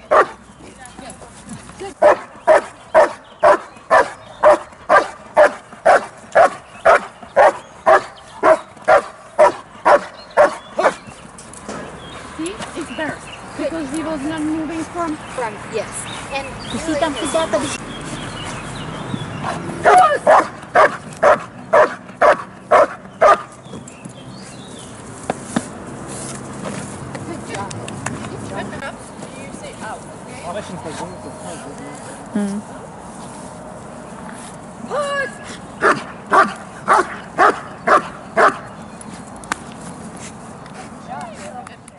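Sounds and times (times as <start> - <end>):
dog barking: 0.1 - 0.4, 2.0 - 11.0, 19.4 - 23.5, 35.8 - 38.6.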